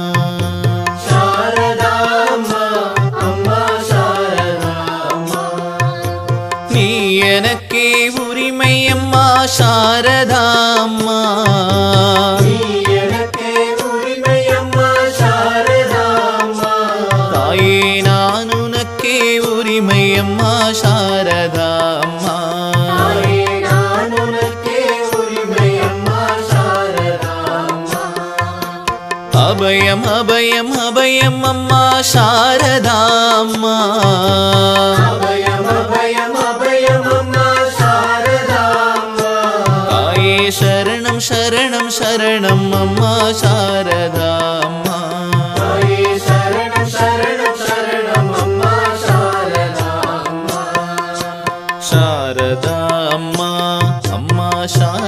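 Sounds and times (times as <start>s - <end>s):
devotional song melody: 0.0s - 55.0s
tabla drum beat: 0.0s - 55.0s
drum beats: 39.5s - 55.0s.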